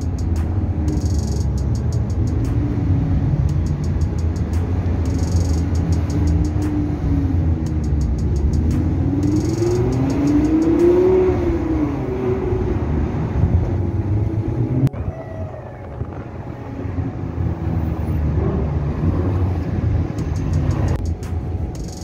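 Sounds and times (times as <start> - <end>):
car engine revving: 0.0 - 22.0
engine rumble: 0.0 - 22.0.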